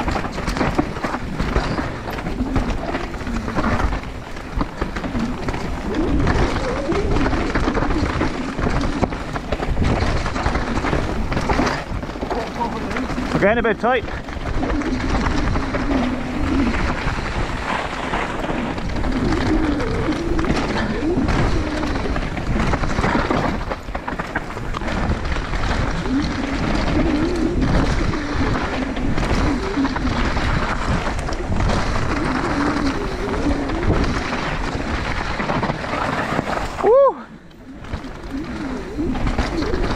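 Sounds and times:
bike tyre roar and rattle: 0:00.0 - 0:39.9
wind on microphone: 0:00.0 - 0:39.9.

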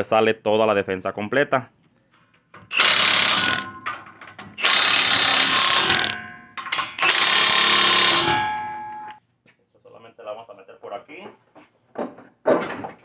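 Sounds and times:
power tool driving bolts: 0:02.6 - 0:09.2.

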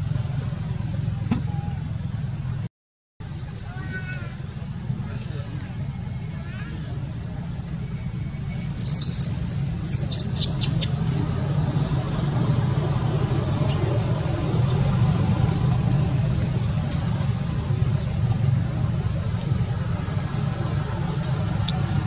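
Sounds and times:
steady low hum: 0:09.4 - 0:22.0.

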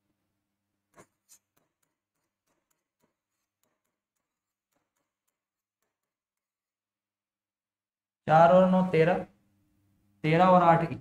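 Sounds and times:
marker writing on whiteboard: 0:00.8 - 0:06.8.

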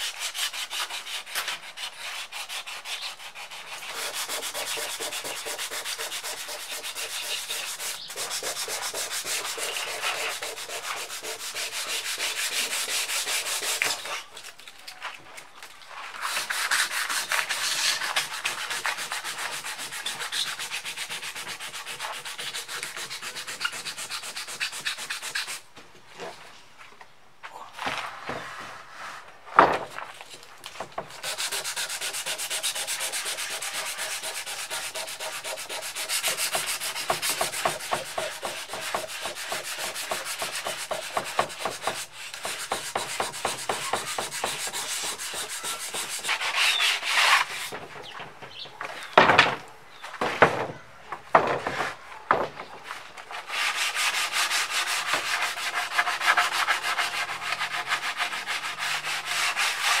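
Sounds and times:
sanding strokes on wood: 0:00.0 - 0:14.5, 0:16.1 - 0:25.7, 0:30.8 - 0:48.1, 0:52.8 - 1:00.0
knocks and scrapes: 0:27.7 - 0:58.6.

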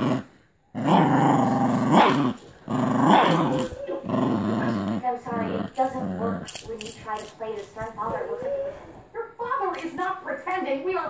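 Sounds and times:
dog growling in play: 0:00.0 - 0:07.1.

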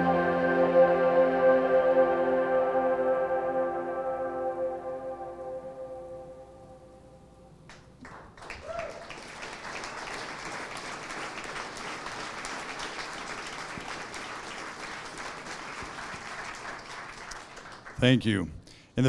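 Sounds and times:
music: 0:00.0 - 0:07.4
audience applauding: 0:07.7 - 0:18.2.

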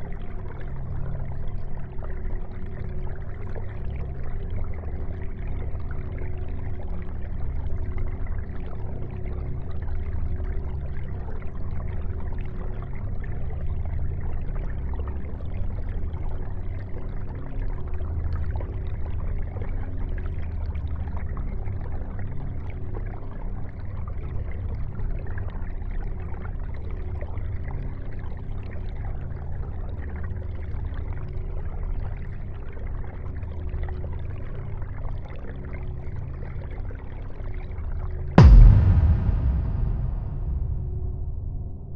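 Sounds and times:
low constant hum: 0:38.4 - 0:41.9.

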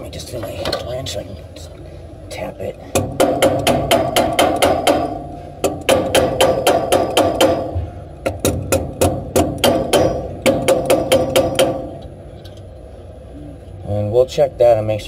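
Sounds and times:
wrench tapping metal: 0:02.9 - 0:12.6.

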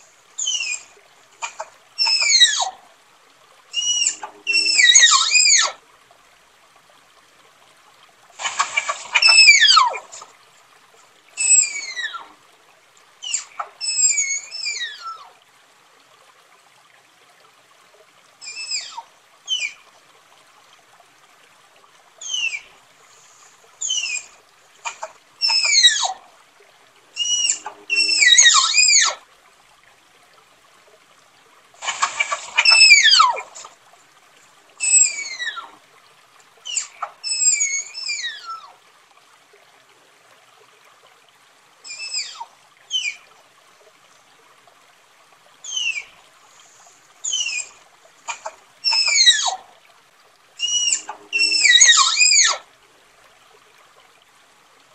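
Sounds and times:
tapir whistling squeals: 0:00.4 - 0:00.9, 0:02.0 - 0:02.7, 0:03.8 - 0:05.8, 0:08.5 - 0:10.2, 0:11.4 - 0:12.2, 0:13.2 - 0:15.2, 0:18.4 - 0:19.8, 0:22.2 - 0:22.7, 0:23.8 - 0:26.2, 0:27.2 - 0:29.2, 0:31.9 - 0:33.6, 0:34.8 - 0:35.7, 0:36.7 - 0:38.6, 0:41.9 - 0:43.2, 0:45.6 - 0:46.1, 0:47.2 - 0:49.6, 0:50.6 - 0:52.6.

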